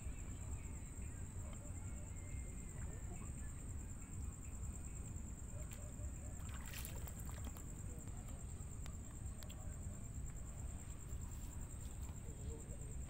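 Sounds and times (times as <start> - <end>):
high-pitched insect trill: 0.0 - 13.0
feet wading through shallow water: 6.4 - 7.6.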